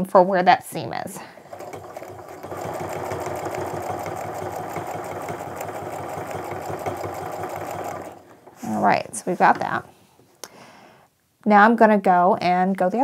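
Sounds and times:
sewing machine stitching: 1.3s - 9.8s.

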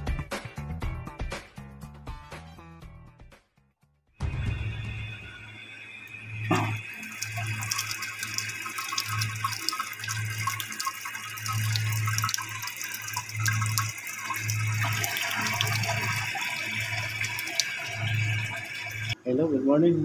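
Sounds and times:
water dripping: 5.2s - 19.2s
water trickling and splashing: 6.0s - 19.2s.

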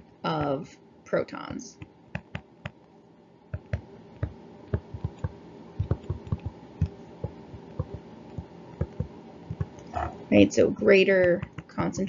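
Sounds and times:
stylus tapping on drawing tablet: 1.8s - 2.8s, 3.6s - 9.8s, 11.2s - 12.0s.

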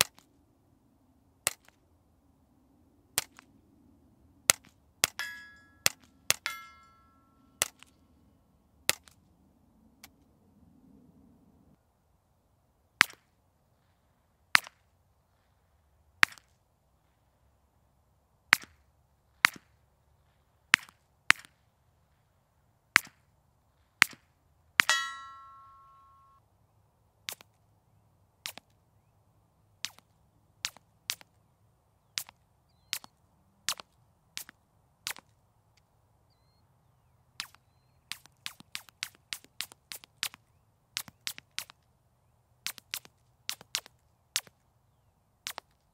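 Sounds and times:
short ringing tone: 24.9s - 26.4s.

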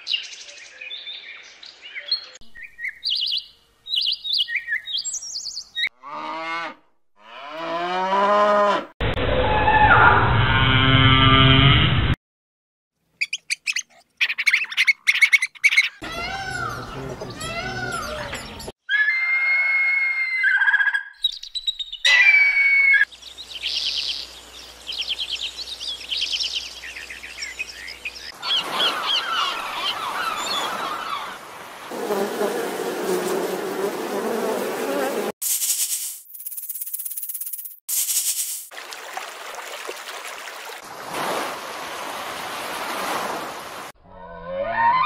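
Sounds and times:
whistled calls and trills: 1.9s - 5.9s, 13.2s - 31.4s
animal chirps and squeaks: 13.2s - 19.2s
insect wing buzz: 31.9s - 38.7s.

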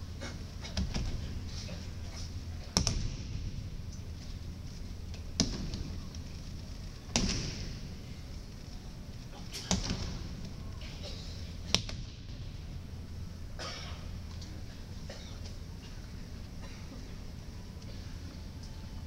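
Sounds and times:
low hum: 0.0s - 19.0s
breakfall slaps on mat: 7.2s - 7.8s.

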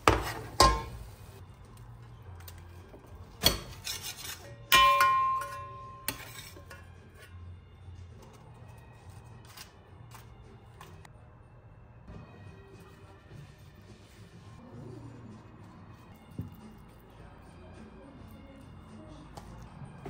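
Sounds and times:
spatula scraping metal pans: 0.0s - 1.0s, 3.4s - 7.4s
pan clank ringing: 4.7s - 6.2s.

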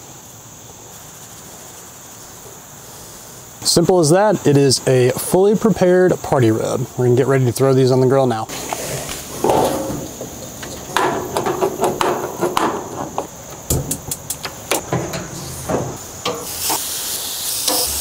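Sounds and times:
gas hiss: 0.0s - 3.8s, 8.5s - 11.1s, 13.2s - 18.0s
burner knobs clicking: 8.6s - 16.9s, 17.5s - 18.0s
grill cabinet door knocks: 10.9s - 16.5s
meat sizzling on grill: 15.5s - 18.0s.

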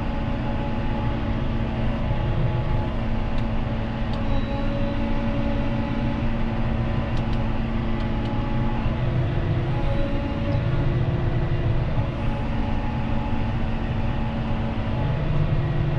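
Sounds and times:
towed machine running: 0.0s - 15.9s
tractor diesel engine running: 0.0s - 15.9s.

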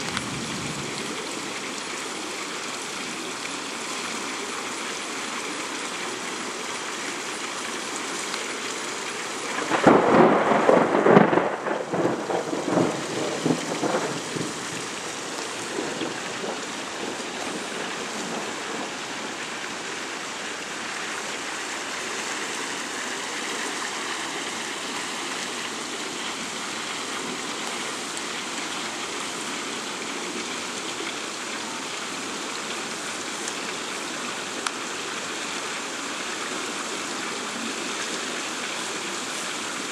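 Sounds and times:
storm rushing hiss: 0.0s - 1.2s, 9.6s - 19.4s
thunder peal: 9.6s - 15.0s.

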